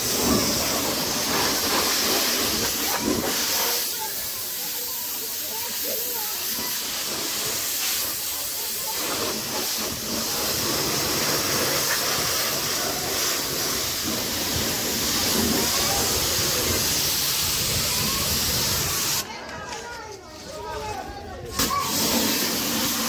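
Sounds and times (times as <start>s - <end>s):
deeper water rushing: 0.0s - 4.4s, 6.4s - 19.2s
pressure washer water jet hiss: 0.0s - 19.3s, 21.6s - 23.0s.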